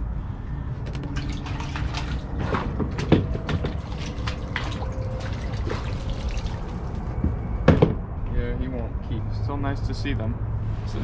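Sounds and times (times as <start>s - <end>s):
water splashing and dripping: 0.9s - 7.2s.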